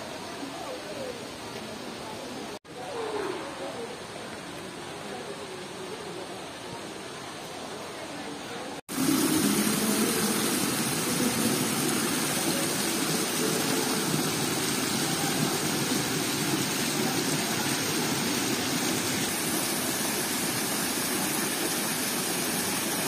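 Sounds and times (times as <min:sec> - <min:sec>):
fountain water splashing: 0:08.9 - 0:23.0.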